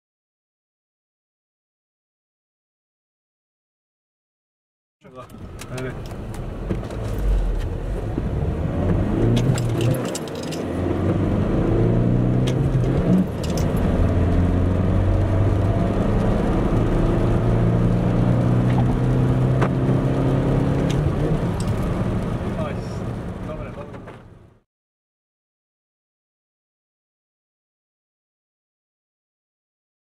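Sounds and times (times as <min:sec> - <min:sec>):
light rattling clicks: 0:05.2 - 0:07.7, 0:09.4 - 0:10.7, 0:12.4 - 0:13.8
diesel engine accelerating: 0:05.2 - 0:24.5.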